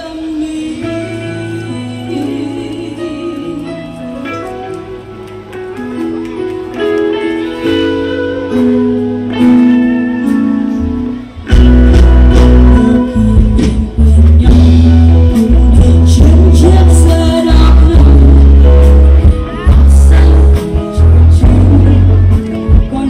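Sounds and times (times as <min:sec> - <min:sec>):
person singing: 0:00.0 - 0:05.2, 0:11.5 - 0:23.0
loud amplified guitar music: 0:00.0 - 0:23.0.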